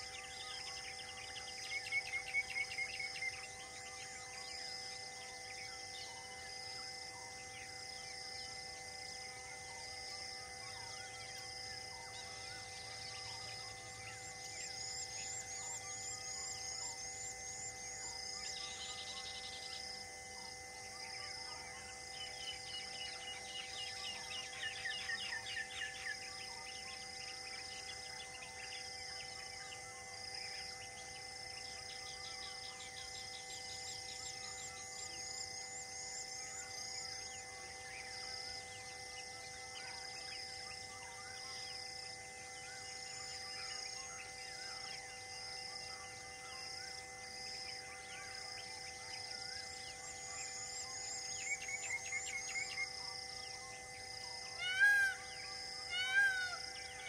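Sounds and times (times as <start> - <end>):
rapid bird trills: 54.4 - 57.0.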